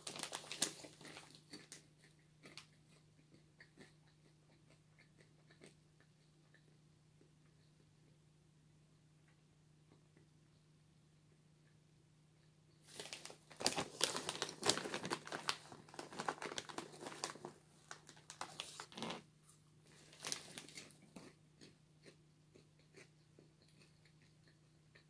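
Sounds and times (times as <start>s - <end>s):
snack bag rustling and crackling: 0.0s - 2.8s, 12.9s - 19.2s, 19.9s - 21.4s.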